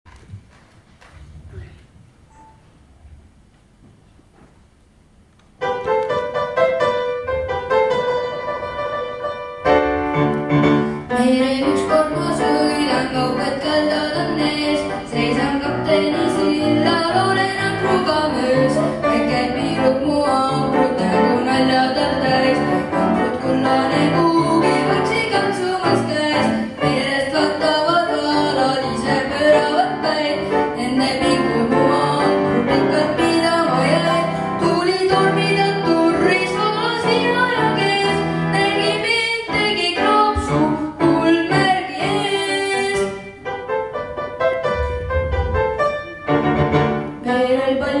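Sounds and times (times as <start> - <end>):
grand piano accompaniment: 0.1 - 48.0.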